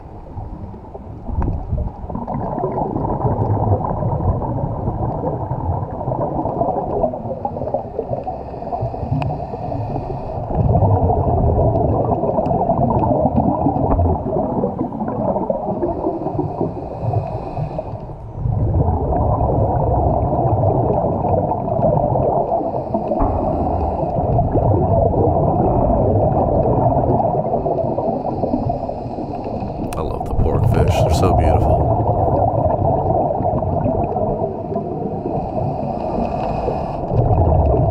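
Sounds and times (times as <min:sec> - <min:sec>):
exhaled bubbles gurgling: 0:00.0 - 0:37.9
scuba diver breathing underwater: 0:07.5 - 0:11.6, 0:14.5 - 0:18.4, 0:21.4 - 0:26.4, 0:27.2 - 0:29.9, 0:32.3 - 0:37.9.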